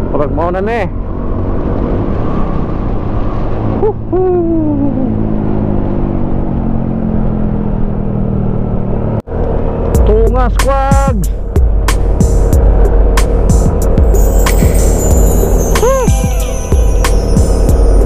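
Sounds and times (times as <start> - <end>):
hooting voice call: 15.7 - 16.6.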